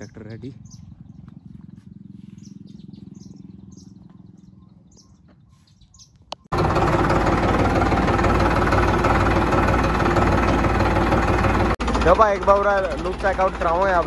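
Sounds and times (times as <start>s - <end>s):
low hum: 0.0s - 5.4s
faint bird chirps: 0.0s - 6.5s
tractor diesel engine running: 6.2s - 14.0s.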